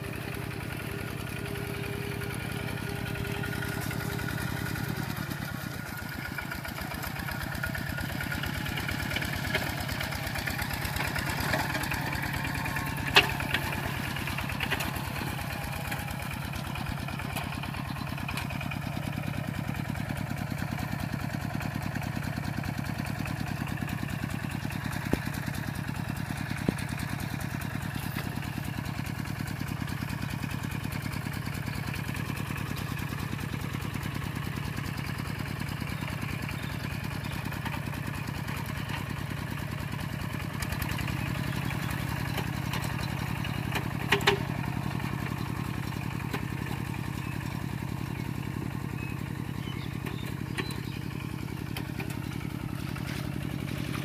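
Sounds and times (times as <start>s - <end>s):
diesel engine running steadily: 0.0s - 54.0s.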